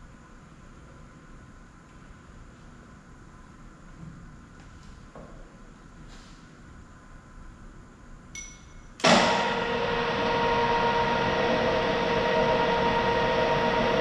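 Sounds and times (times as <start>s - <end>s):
light metal clink: 8.3s - 9.0s
drill press humming and whining: 9.0s - 14.0s.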